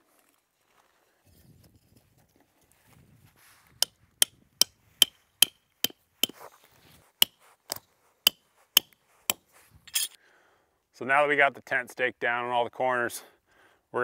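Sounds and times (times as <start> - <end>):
hatchet striking metal tent stake: 3.8 - 6.4, 7.2 - 7.5, 8.3 - 10.2.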